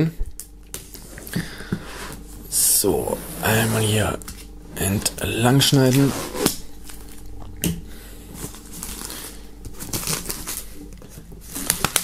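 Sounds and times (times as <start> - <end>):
plastic film crinkling: 8.4 - 12.0.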